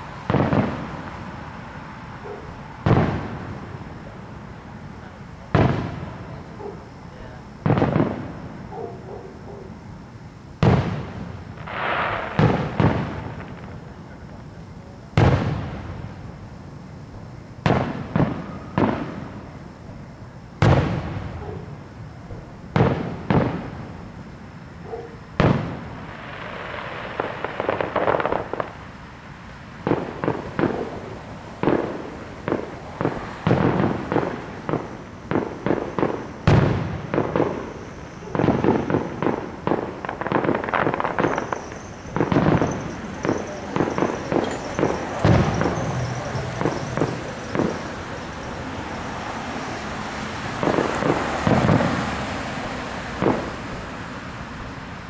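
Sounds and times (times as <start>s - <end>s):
firework hissing: 10.0s - 21.8s, 25.4s - 55.0s
firework shells bursting: 25.4s - 28.8s, 29.8s - 49.1s, 50.5s - 52.2s.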